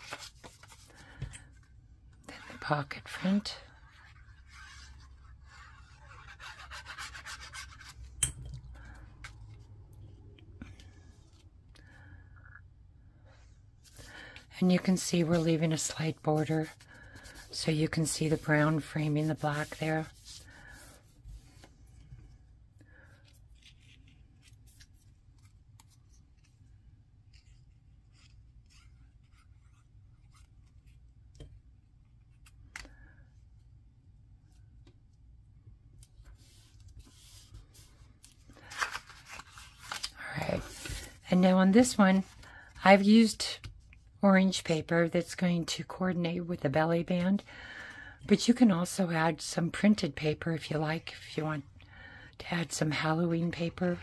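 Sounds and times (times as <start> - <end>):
cardstock rubbing and sliding: 14.7 - 21.7, 38.7 - 41.2.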